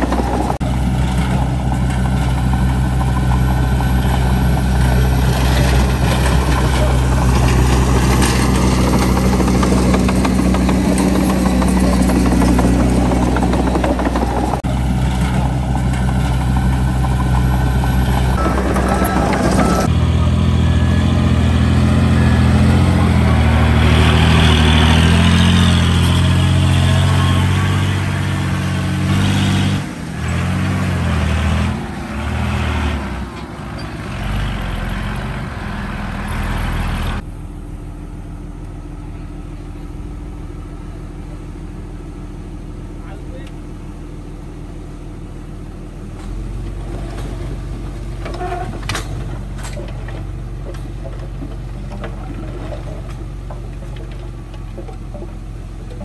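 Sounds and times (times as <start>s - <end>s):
heavy diesel engines under load: 0.0s - 56.0s.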